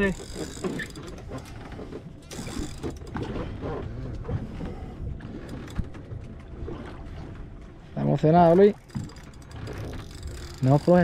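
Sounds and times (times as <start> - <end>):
boat and water noise: 0.0 - 11.0
fishing reel ratchet clicking: 2.3 - 3.1, 9.0 - 11.0.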